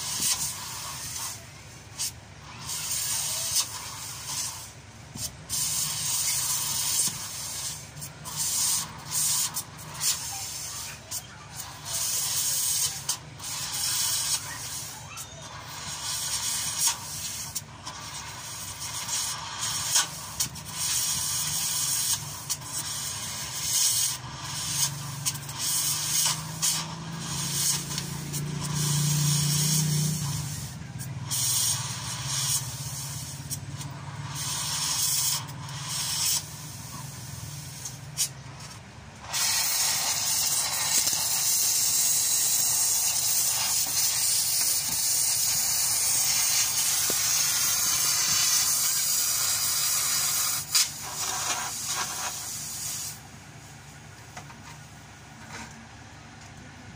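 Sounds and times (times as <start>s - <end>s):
cutting torch hissing: 0.0s - 53.3s
crackling and popping metal: 15.5s - 53.2s.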